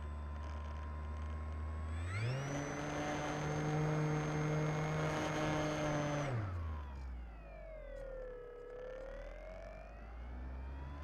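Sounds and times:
model plane motor whine: 1.8s - 7.2s.

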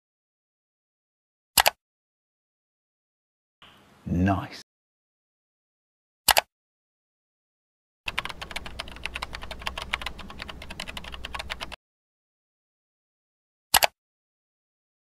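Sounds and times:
mouse double click: 1.6s - 1.8s, 6.3s - 6.5s, 13.7s - 14.0s
rapid keyboard typing: 8.1s - 11.8s.

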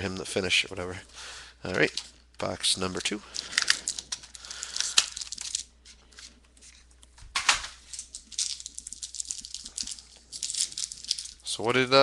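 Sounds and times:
foil card pack crinkling: 1.8s - 6.8s, 7.8s - 11.9s.

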